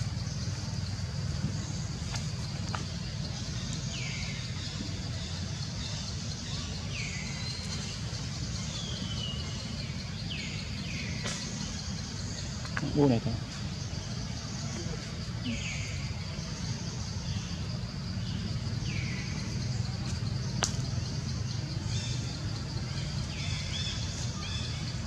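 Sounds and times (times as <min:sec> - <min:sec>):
high insect hiss: 0:00.0 - 0:25.0
low engine rumble: 0:00.0 - 0:25.0.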